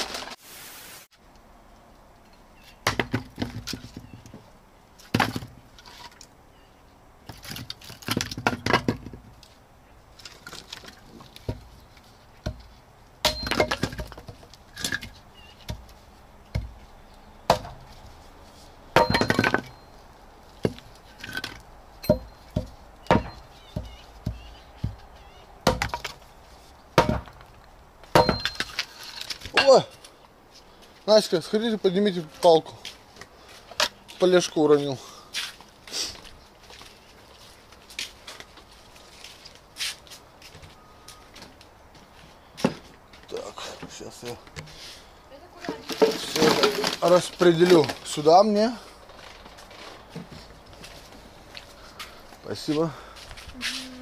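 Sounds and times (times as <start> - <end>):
firewood knocking and clinking: 7.3 - 9.4, 12.4 - 16.8, 17.5 - 17.9, 18.9 - 19.9, 20.6 - 25.0, 25.6 - 26.2, 27.0 - 30.0.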